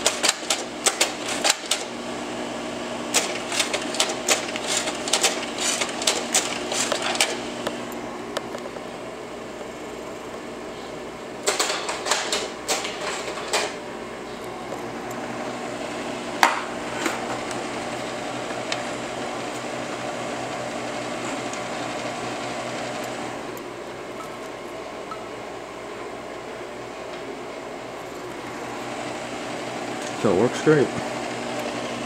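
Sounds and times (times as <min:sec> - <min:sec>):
projector clicks and clunks: 0:00.0 - 0:02.0, 0:03.1 - 0:08.8, 0:11.4 - 0:13.8
projector fan humming: 0:00.0 - 0:32.0.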